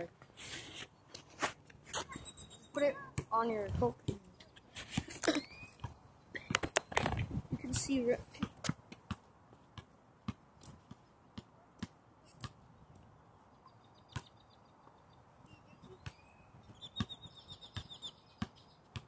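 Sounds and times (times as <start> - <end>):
faint high chirps: 1.9 - 3.1, 13.6 - 18.8
basketball bouncing: 15.9 - 19.0.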